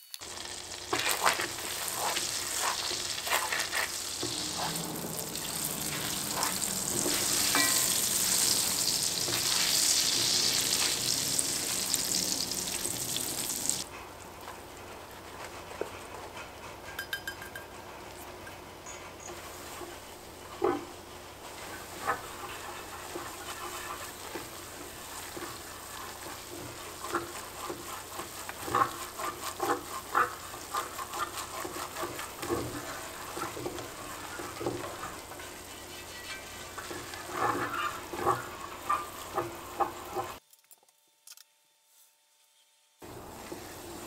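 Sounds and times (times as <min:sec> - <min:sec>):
butter sizzling: 0:00.0 - 0:16.4, 0:19.1 - 0:40.4, 0:43.0 - 0:44.0
whisk scraping a pot: 0:00.4 - 0:17.2, 0:18.3 - 0:40.4, 0:43.0 - 0:44.0.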